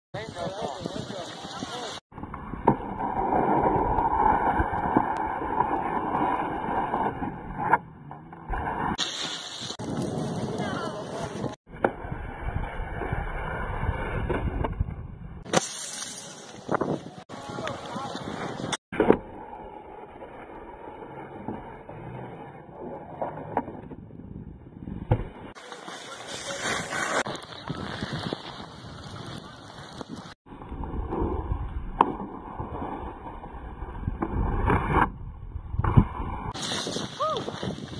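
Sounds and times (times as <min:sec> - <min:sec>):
snowboard scraping on box: 0:02.7 - 0:11.5, 0:25.2 - 0:30.2, 0:35.9 - 0:37.9.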